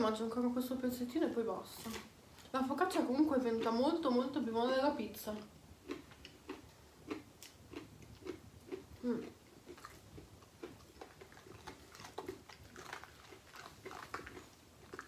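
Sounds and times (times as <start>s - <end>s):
people chewing: 5.8s - 15.0s.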